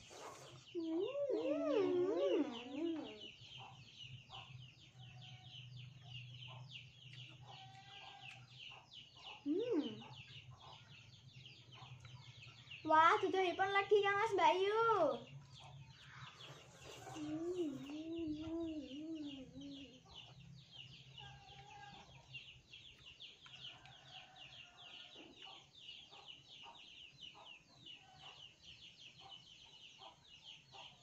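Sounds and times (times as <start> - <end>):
child humming: 0.8 - 3.3, 17.0 - 20.1
chewing clicks: 7.0 - 8.8, 22.9 - 24.2.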